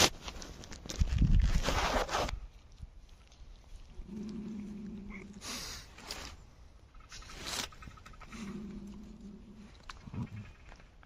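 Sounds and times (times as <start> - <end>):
dog sniffing and snuffling: 1.6 - 6.5.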